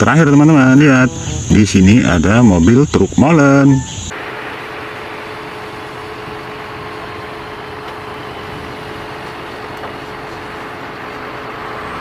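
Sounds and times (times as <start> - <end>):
thin steady hum: 0.1 - 12.0
diesel truck engine running: 3.7 - 12.0.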